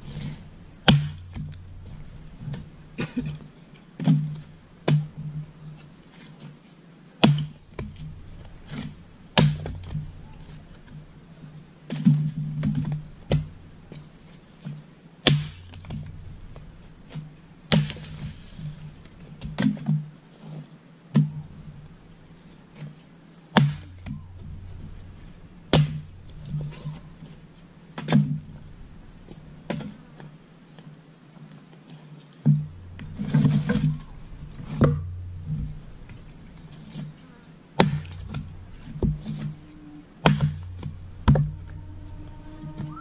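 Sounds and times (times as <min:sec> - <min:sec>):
axe splitting firewood: 0:00.1 - 0:03.4, 0:04.0 - 0:05.3, 0:07.2 - 0:11.0, 0:15.2 - 0:20.0, 0:23.6 - 0:27.0, 0:28.0 - 0:30.0, 0:32.5 - 0:37.2, 0:37.8 - 0:39.6, 0:40.2 - 0:41.9.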